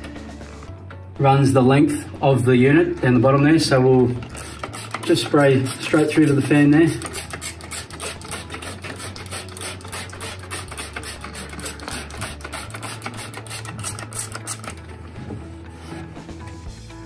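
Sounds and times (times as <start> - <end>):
background music with bass line: 0.0 - 17.0
spray bottle squirting: 4.2 - 14.9.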